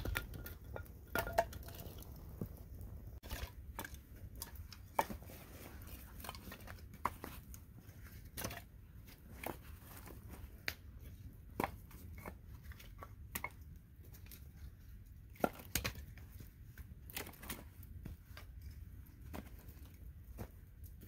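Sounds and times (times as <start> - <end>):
jacket and gloves rustling: 4.8 - 6.7.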